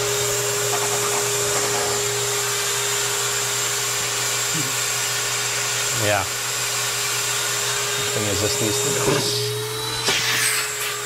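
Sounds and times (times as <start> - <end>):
vacuum unit running: 0.0 - 11.0.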